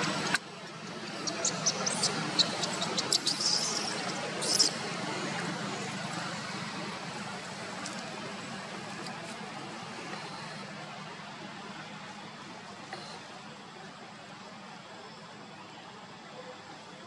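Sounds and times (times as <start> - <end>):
baby monkey squeaking: 1.2 - 4.8.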